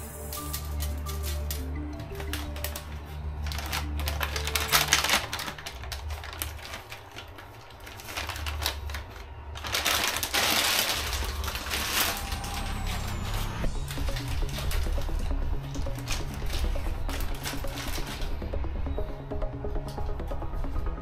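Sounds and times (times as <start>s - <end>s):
background music with bass line: 11.5s - 21.0s.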